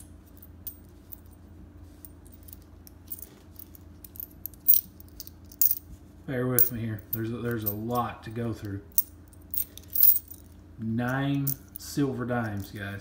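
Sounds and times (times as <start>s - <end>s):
coins clinking: 2.3s - 5.8s, 9.0s - 10.5s.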